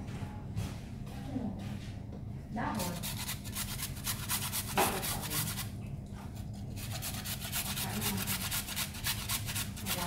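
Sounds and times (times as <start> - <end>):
carrot grating on metal grater: 2.8 - 5.7, 6.7 - 10.0.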